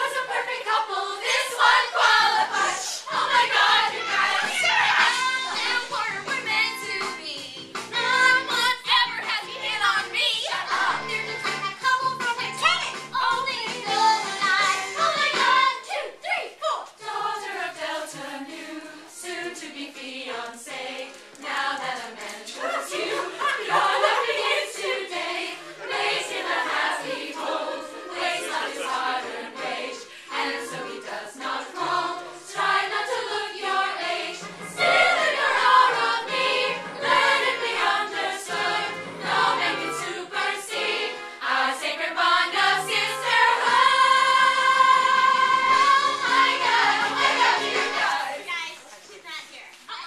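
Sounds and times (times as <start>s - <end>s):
girls singing in chorus: 0.0s - 7.0s, 13.2s - 48.5s.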